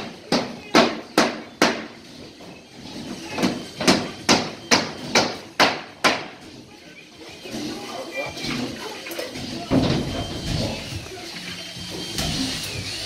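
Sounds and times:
hammer driving nails: 0:00.0 - 0:02.2, 0:03.3 - 0:06.4.

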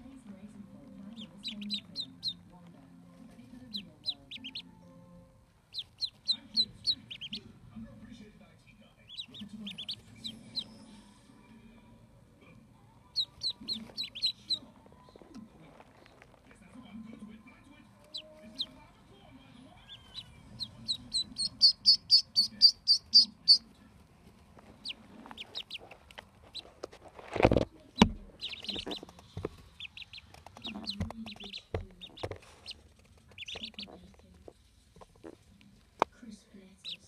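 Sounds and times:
ducklings peeping: 0:01.0 - 0:02.5, 0:03.6 - 0:04.8, 0:05.6 - 0:07.6, 0:08.9 - 0:10.9, 0:13.1 - 0:14.7, 0:18.0 - 0:18.8, 0:19.7 - 0:23.7, 0:24.7 - 0:26.8, 0:27.9 - 0:35.4.

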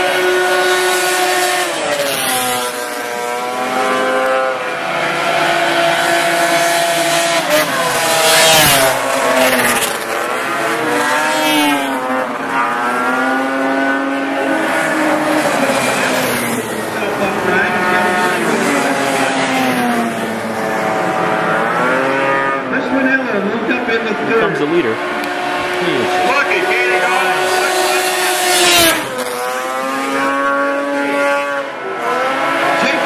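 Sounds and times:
snowmobile engines revving: 0:00.0 - 0:33.0.

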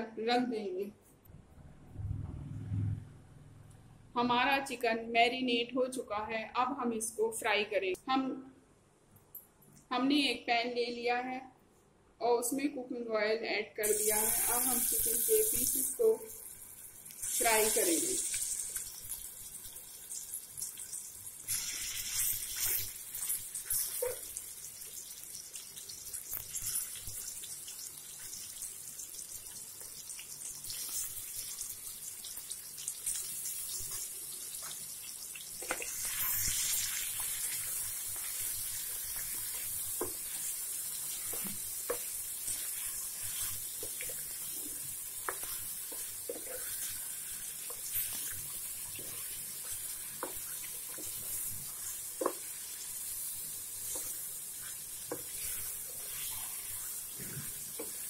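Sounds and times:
chicken sizzling in oil: 0:13.8 - 0:58.0.

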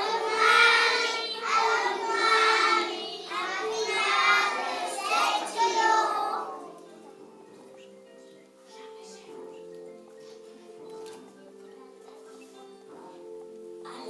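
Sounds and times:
children singing: 0:00.0 - 0:06.8
backing music: 0:00.0 - 0:14.0.

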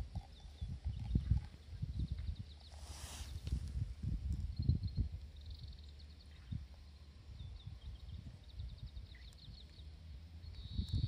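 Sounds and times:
small bird chirping: 0:07.4 - 0:11.0.

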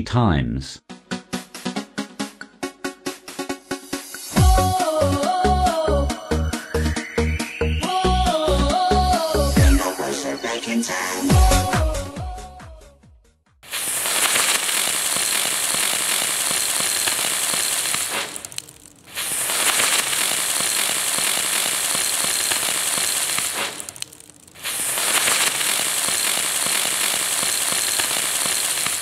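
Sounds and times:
firework spinning and hissing: 0:03.8 - 0:04.8, 0:13.6 - 0:29.0
crackle of sparks: 0:13.6 - 0:29.0.

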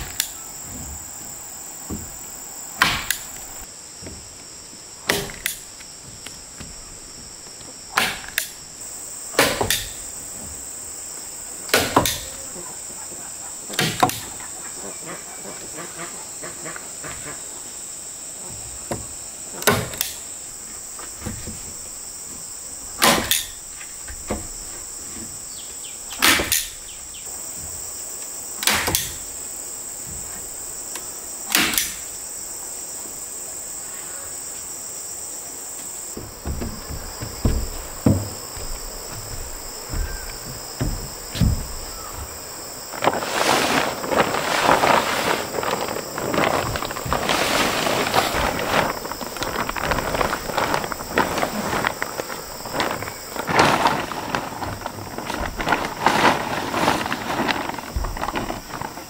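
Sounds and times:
high-pitched insect chorus: 0:00.0 - 0:59.0
sharp knocks: 0:36.2 - 0:42.4.

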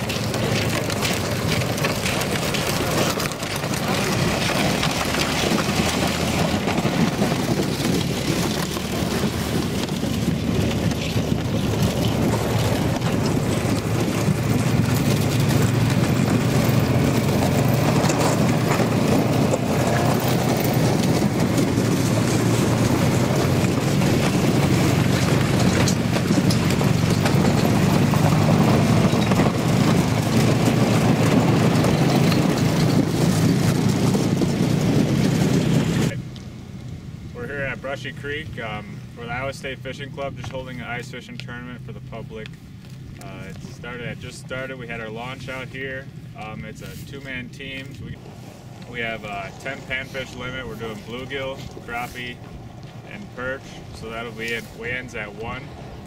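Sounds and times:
tyre rumbling on ice: 0:00.0 - 0:36.1
vehicle engine drone: 0:00.0 - 0:56.0
wind on microphone: 0:03.8 - 0:36.2.

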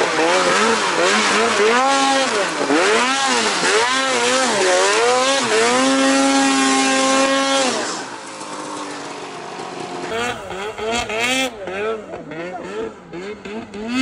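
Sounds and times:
snowmobile engine revving: 0:00.0 - 0:14.0.

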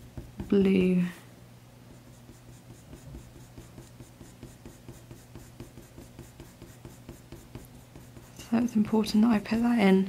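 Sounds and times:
pencil scratching on paper: 0:01.9 - 0:08.6.

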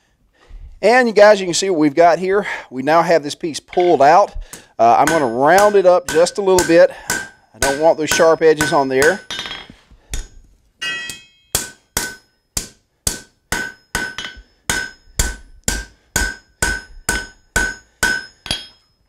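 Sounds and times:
anvil ringing: 0:03.7 - 0:04.2, 0:05.0 - 0:19.0
hammer striking steel on anvil: 0:04.9 - 0:19.0.

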